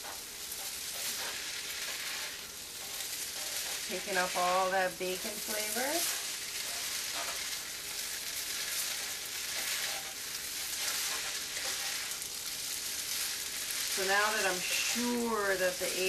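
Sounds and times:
pasta sizzling in frying pan: 0:00.0 - 0:16.0
spatula stirring: 0:00.0 - 0:16.0.

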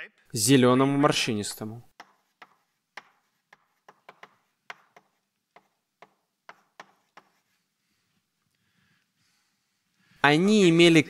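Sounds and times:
chalk tapping on blackboard: 0:01.9 - 0:07.7.

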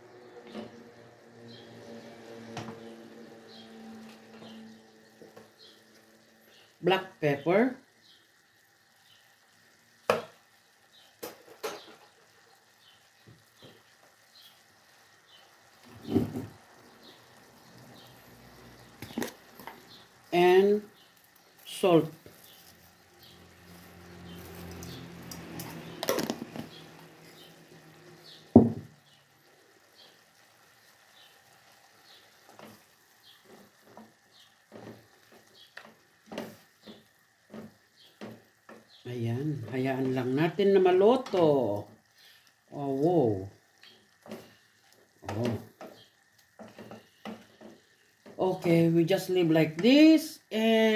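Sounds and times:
faint pot sizzling: 0:00.0 - 0:50.9
wooden spoon scraping a pot: 0:44.2 - 0:48.4.

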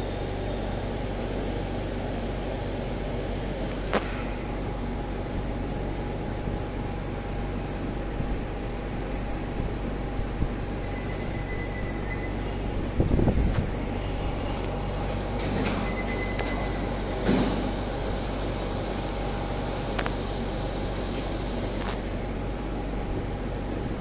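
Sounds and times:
machinery hum: 0:00.0 - 0:24.0.

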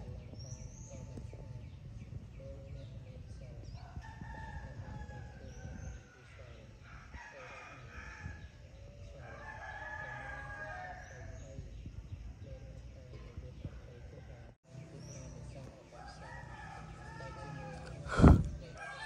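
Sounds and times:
roosters crowing: 0:03.6 - 0:11.7, 0:15.9 - 0:19.0.

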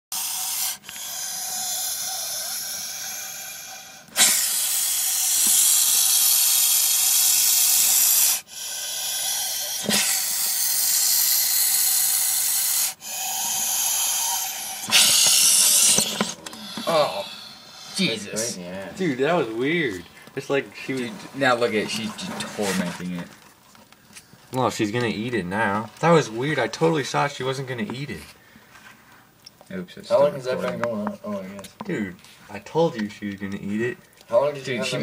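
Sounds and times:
snake hissing loudly: 0:00.1 - 0:18.6.

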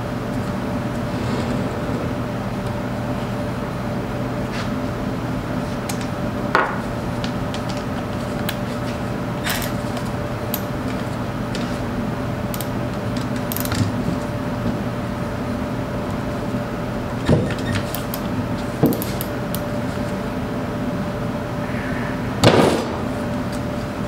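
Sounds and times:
steady low hum: 0:00.0 - 0:07.2, 0:19.2 - 0:24.0.

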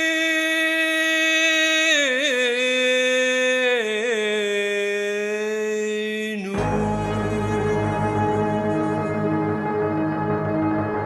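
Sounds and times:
man singing unaccompanied: 0:00.0 - 0:07.5.

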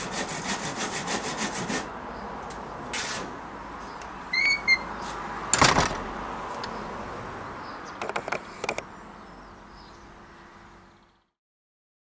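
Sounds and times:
wooden door banging shut: 0:05.5 - 0:06.1.

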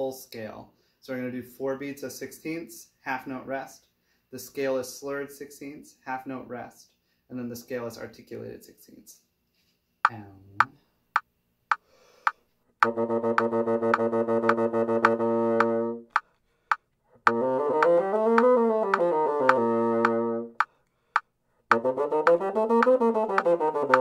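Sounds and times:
metronome clicking: 0:11.7 - 0:24.0
bassoon playing: 0:12.8 - 0:16.1, 0:17.2 - 0:20.6, 0:21.7 - 0:24.0.

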